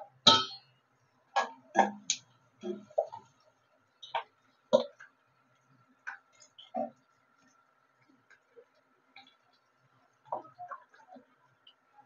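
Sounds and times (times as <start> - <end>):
metal spoon against pan: 0.0 - 0.8
clicks and knocks in metal pan: 0.3 - 0.7.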